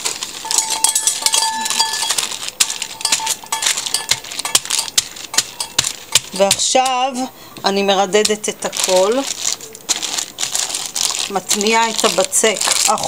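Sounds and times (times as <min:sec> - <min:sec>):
baking paper crackling: 0:00.0 - 0:13.0
thin high tone: 0:00.4 - 0:05.8.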